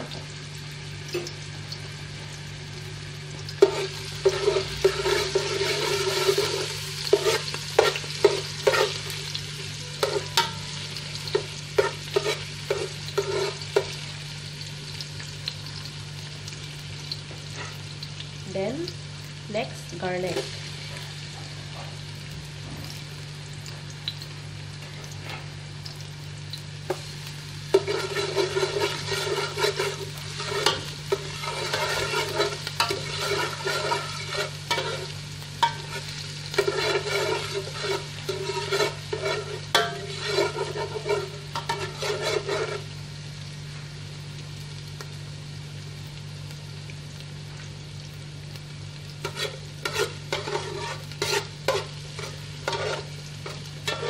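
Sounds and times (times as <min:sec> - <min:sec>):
garlic sizzling in hot oil: 0:00.0 - 0:54.0
spatula scraping metal pot: 0:03.6 - 0:09.1, 0:11.8 - 0:13.9, 0:27.7 - 0:42.8, 0:49.2 - 0:54.0.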